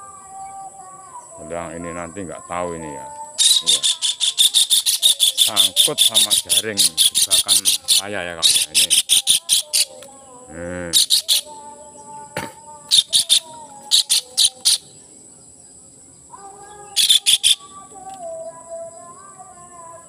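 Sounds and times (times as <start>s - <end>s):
crickets trilling: 0.0s - 20.0s
bird screeching distress calls: 3.0s - 10.0s, 10.9s - 11.6s, 12.8s - 14.9s, 16.7s - 18.1s
bird drawn-out squawk: 3.4s - 9.9s, 10.9s - 11.5s, 12.9s - 14.8s, 17.0s - 17.6s.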